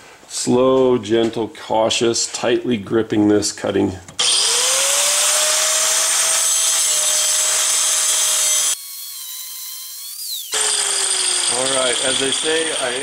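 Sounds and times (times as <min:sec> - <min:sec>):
angle grinder motor whine: 0:04.2 - 0:13.0
grinding hiss cutting steel: 0:10.5 - 0:13.0.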